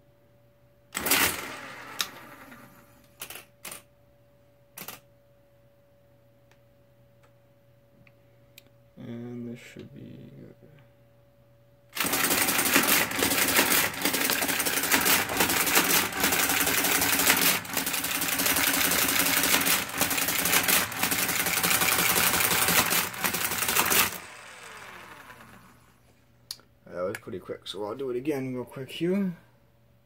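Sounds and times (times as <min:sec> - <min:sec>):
motor whine: 0:01.0 - 0:03.1, 0:18.7 - 0:26.1
mechanical calculator clatter: 0:01.0 - 0:03.8, 0:12.0 - 0:25.8.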